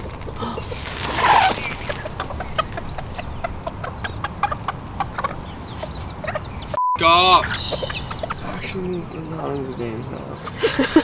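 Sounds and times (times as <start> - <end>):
chickens clucking: 0.0 - 11.0
tent fabric rustling: 0.7 - 2.0.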